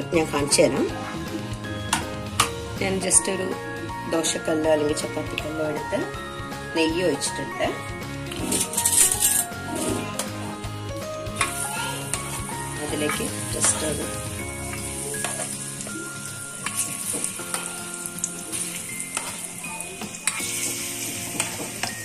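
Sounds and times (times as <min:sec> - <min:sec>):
banana slices sizzling in oil: 0:11.4 - 0:22.0.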